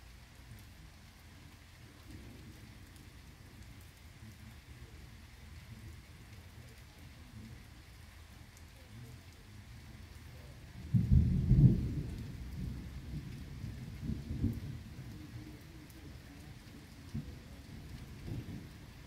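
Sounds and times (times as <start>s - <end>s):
heavy rain: 0.0s - 19.0s
thunder rumbling: 10.8s - 15.4s, 17.0s - 19.0s.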